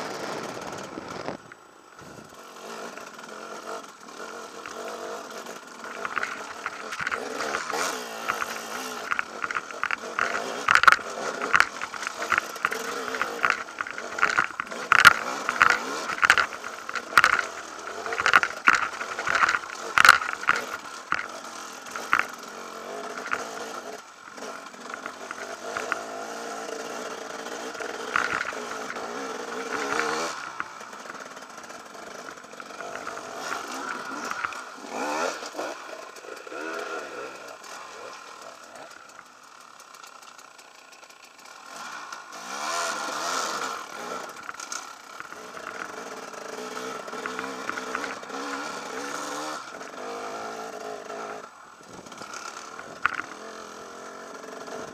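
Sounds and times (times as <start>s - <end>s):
motorcycle engine revving: 0.0s - 54.9s
motorcycle knocking against rocks: 4.5s - 37.0s, 43.0s - 50.9s, 51.8s - 54.9s.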